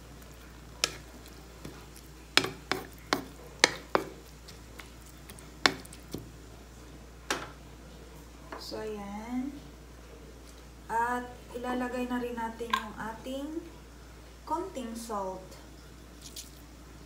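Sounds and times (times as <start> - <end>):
wooden spatula tapping a pan: 2.4 - 4.2, 5.6 - 6.3.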